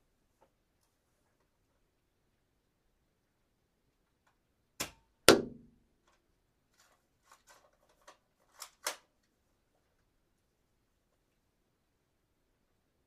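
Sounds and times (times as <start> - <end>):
dart gun shot: 4.8 - 5.8.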